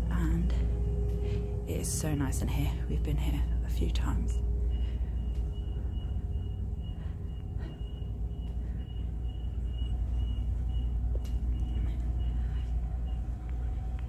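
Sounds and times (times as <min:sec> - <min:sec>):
ship background hum: 0:00.0 - 0:14.0
faint high-pitched chirp: 0:04.3 - 0:13.7.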